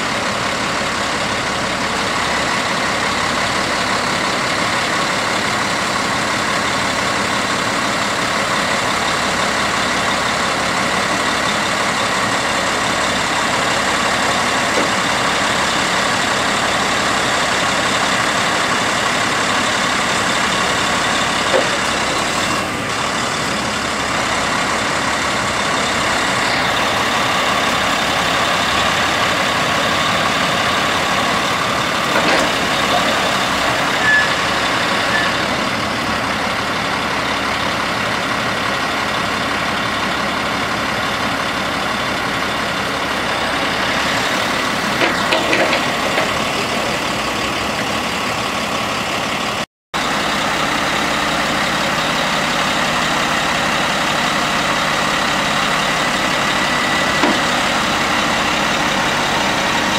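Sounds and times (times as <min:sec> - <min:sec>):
diesel truck engine running: 0:00.0 - 0:59.9
hydraulic high whine: 0:00.0 - 0:59.9
crane boom clicks: 0:30.3 - 0:35.0, 0:43.6 - 0:48.2, 0:54.6 - 0:59.9.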